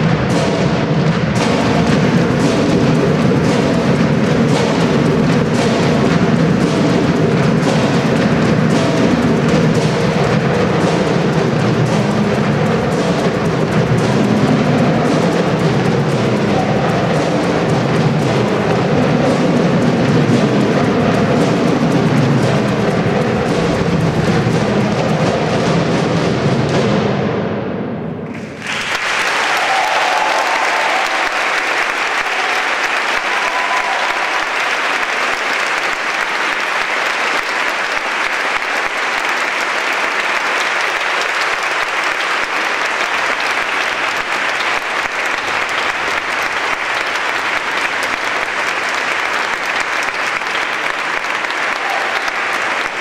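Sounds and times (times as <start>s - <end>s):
music: 0.0s - 53.0s
audience applauding: 28.3s - 53.0s.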